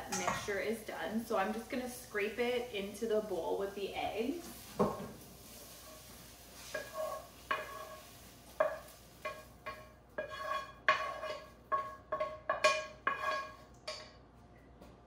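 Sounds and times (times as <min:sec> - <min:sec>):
food scraped into metal bowl: 0:05.5 - 0:09.4, 0:10.2 - 0:12.2, 0:13.0 - 0:13.6
wooden spoon knocking on frying pan: 0:08.6 - 0:14.2.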